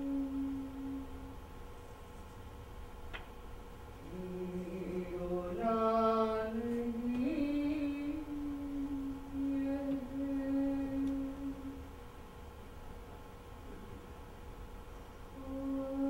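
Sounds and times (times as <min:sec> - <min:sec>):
woman chanting long notes: 0:00.0 - 0:01.3, 0:04.0 - 0:11.8, 0:15.4 - 0:16.0.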